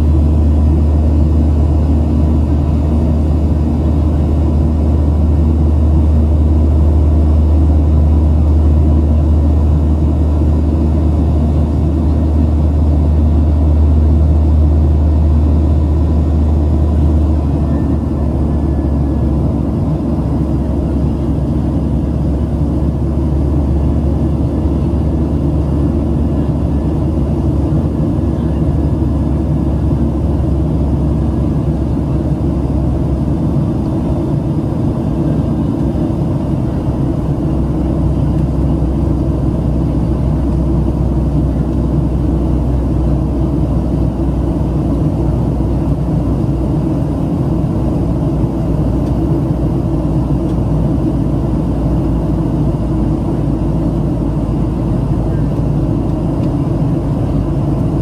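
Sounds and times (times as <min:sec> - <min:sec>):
jet engine drone: 0:00.0 - 0:58.0.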